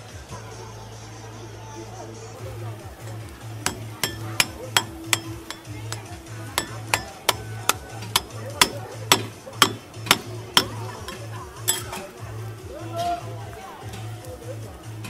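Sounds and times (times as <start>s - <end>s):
metal spatula tapping steel griddle: 3.0s - 12.0s.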